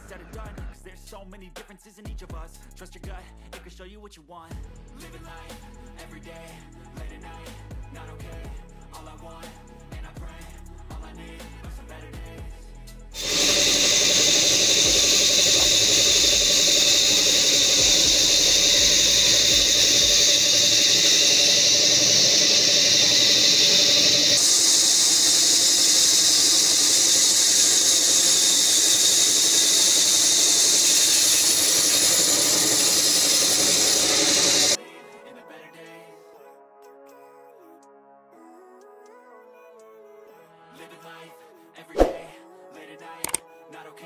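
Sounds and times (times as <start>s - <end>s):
band saw cutting log: 13.2s - 34.8s.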